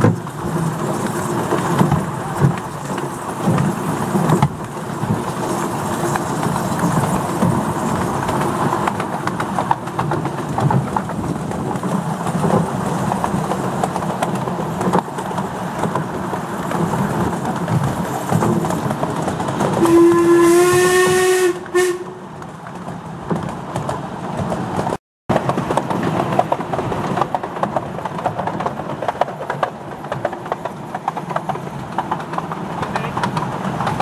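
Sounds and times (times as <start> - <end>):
steam hissing: 0.0 - 9.2
railway carriages rumbling and rattling: 0.0 - 34.0
steam locomotive whistle: 19.8 - 22.2.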